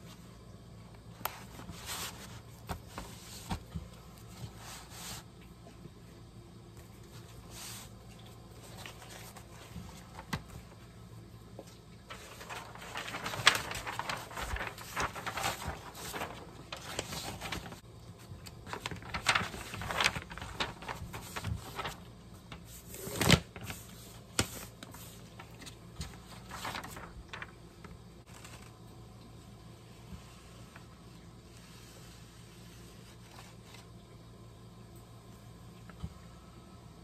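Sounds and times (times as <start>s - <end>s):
paper rustling and scraping: 1.2s - 5.3s, 7.0s - 10.8s, 12.1s - 28.8s, 31.5s - 33.9s.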